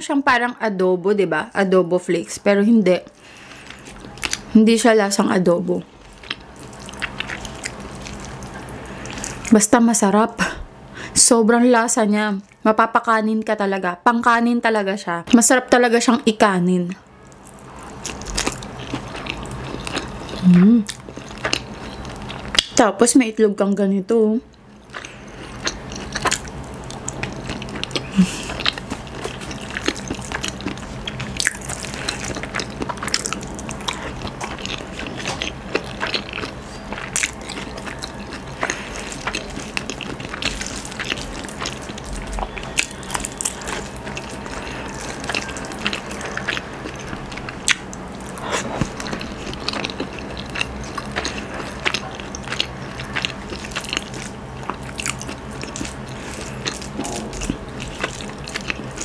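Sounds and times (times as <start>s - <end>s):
faint steady hum: 0.0s - 59.0s
biting and chewing food: 3.4s - 4.5s, 6.0s - 9.5s, 17.2s - 22.8s, 24.6s - 59.0s.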